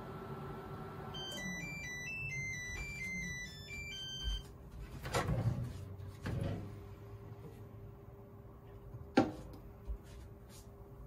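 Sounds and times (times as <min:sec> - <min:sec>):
microwave chime beeps: 0:01.1 - 0:04.5.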